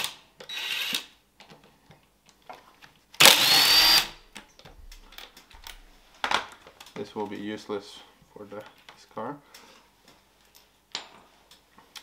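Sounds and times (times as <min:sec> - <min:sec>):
cordless drill whining: 0:00.4 - 0:01.1, 0:03.2 - 0:04.2.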